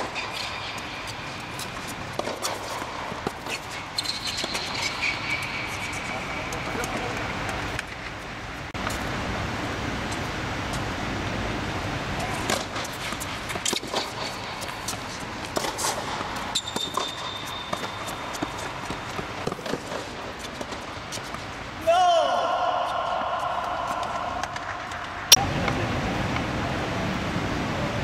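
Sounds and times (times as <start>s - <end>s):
tennis racket striking ball: 0.0s - 6.0s, 12.4s - 21.3s
ball bouncing: 0.0s - 8.0s, 12.5s - 21.4s
shoe squeak: 3.4s - 6.6s, 15.8s - 18.8s.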